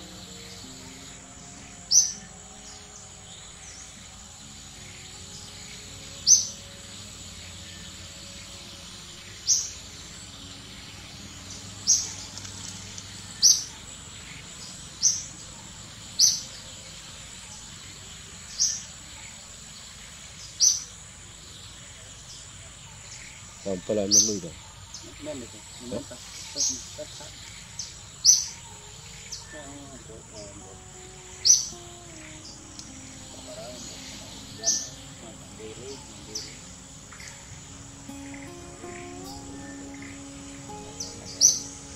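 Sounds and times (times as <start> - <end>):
high-pitched insect drone: 23.6 - 41.9.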